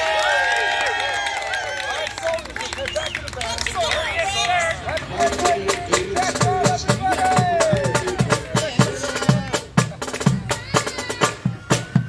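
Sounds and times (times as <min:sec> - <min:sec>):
marching drumline: 0:05.1 - 0:12.0.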